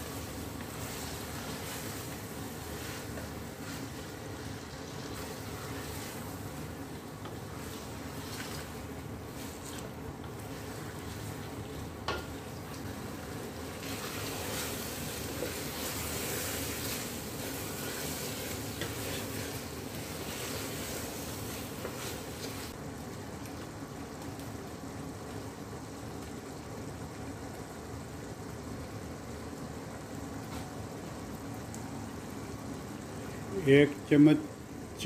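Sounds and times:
wooden spoon stirring: 0.0s - 22.8s
chicken sizzling in a pot: 0.0s - 35.0s.

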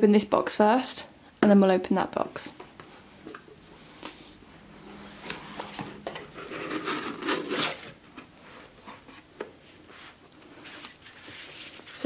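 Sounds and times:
cardboard box being opened: 6.2s - 8.0s.

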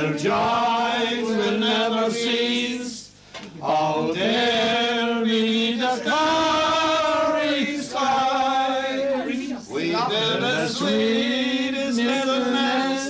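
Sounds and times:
singer breathing: 3.1s - 3.4s.

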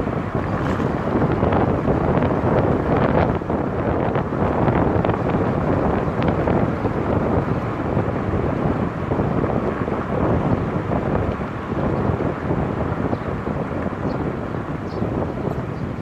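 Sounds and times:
road noise: 0.0s - 16.0s
wind buffeting microphone: 0.0s - 16.0s.

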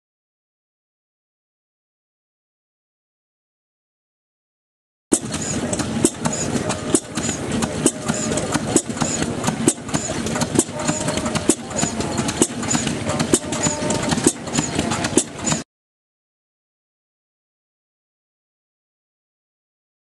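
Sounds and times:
valve gear clicks: 5.1s - 15.6s.

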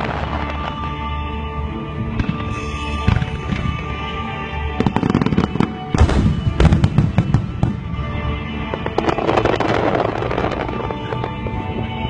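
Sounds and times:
fireworks crackling: 0.0s - 1.2s, 2.1s - 12.0s
music: 0.0s - 12.0s
fireworks bangs: 2.2s - 11.6s.

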